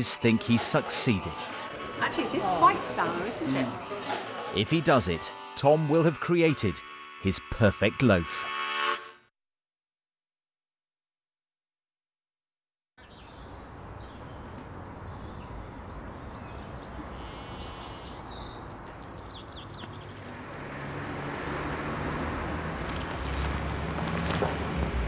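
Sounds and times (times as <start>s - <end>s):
birds chirping: 13.0s - 20.4s
car passing: 19.9s - 25.0s.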